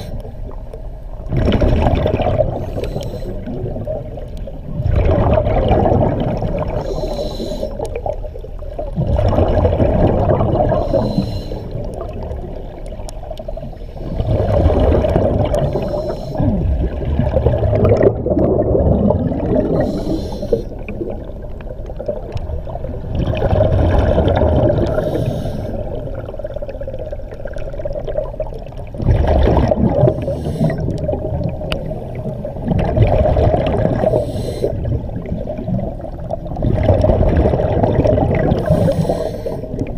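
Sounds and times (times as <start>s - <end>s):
exhaled air bubbling: 0.0s - 39.9s
regulator inhale hiss: 2.6s - 3.6s, 6.8s - 7.9s, 10.7s - 11.9s, 15.6s - 16.5s, 19.8s - 20.9s, 24.8s - 26.0s, 30.1s - 31.0s, 34.0s - 34.9s, 38.6s - 39.9s.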